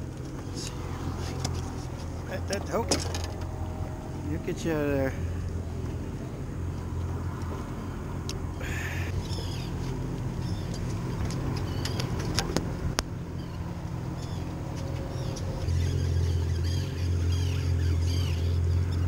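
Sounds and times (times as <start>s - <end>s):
outboard motor idling: 0.0s - 19.0s
seabirds chirping: 4.1s - 12.4s, 13.2s - 19.0s.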